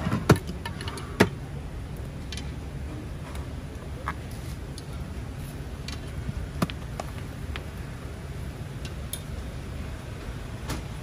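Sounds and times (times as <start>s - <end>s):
low background rumble: 0.0s - 11.0s.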